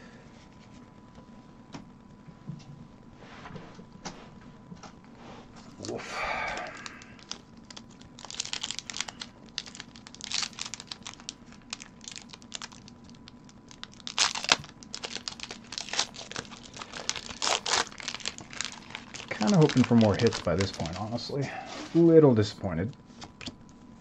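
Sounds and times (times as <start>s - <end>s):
foil wrapper crinkling and tearing: 6.2s - 21.3s.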